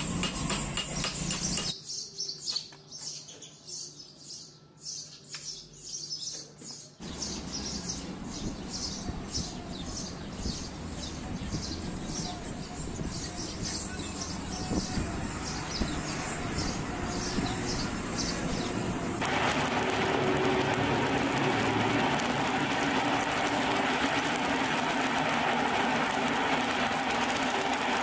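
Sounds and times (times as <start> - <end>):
small birds chirping: 0.2 - 19.0.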